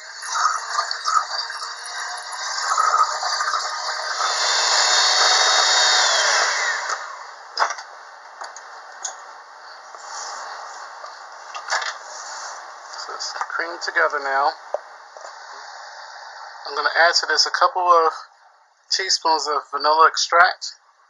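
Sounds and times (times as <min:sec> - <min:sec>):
electric hand mixer running: 0:00.0 - 0:07.3.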